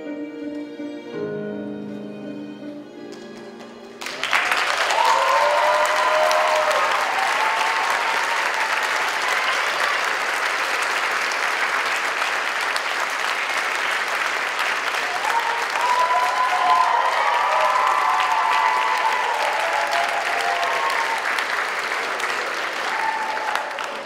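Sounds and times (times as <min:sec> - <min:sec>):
music: 0:00.0 - 0:04.7
audience applauding: 0:03.0 - 0:24.0
people cheering: 0:04.0 - 0:24.0.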